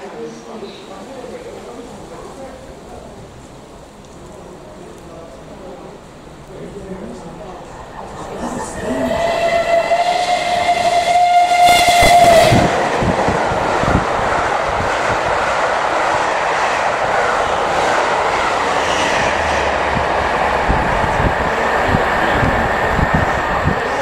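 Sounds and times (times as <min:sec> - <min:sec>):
steam whistle blast: 0:09.0 - 0:12.8
train wheel clatter: 0:09.1 - 0:15.4.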